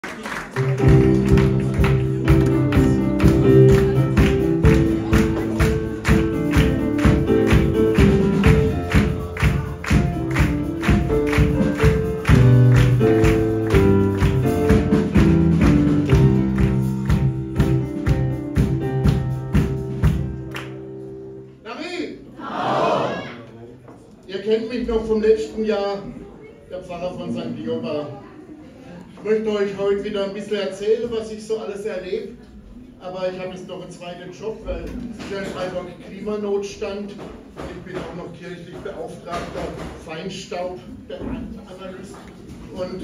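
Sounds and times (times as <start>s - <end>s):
music with steady beat: 0.7s - 21.3s.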